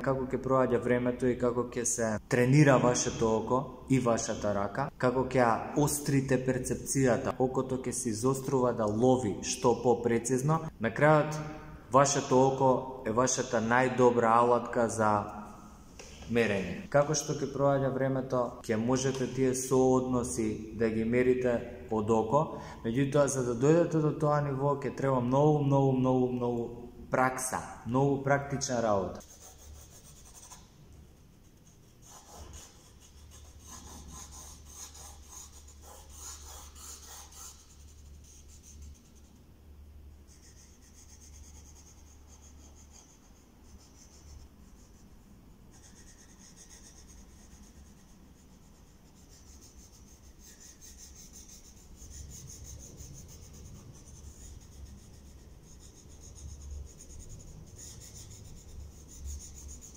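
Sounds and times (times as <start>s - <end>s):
pencil scratching on paper: 29.2s - 39.4s, 40.2s - 59.9s.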